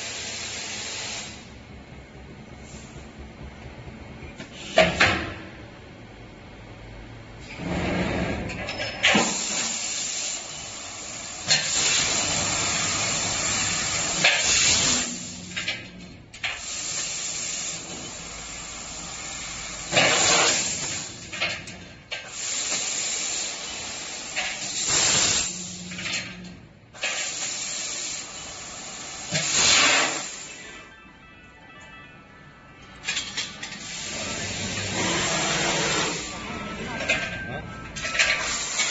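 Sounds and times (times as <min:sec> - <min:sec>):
hiss of laser cutter gas: 0:00.0 - 0:01.6, 0:09.1 - 0:15.8, 0:16.4 - 0:21.3, 0:22.2 - 0:26.2, 0:27.0 - 0:30.8, 0:33.7 - 0:36.4, 0:38.2 - 0:38.9.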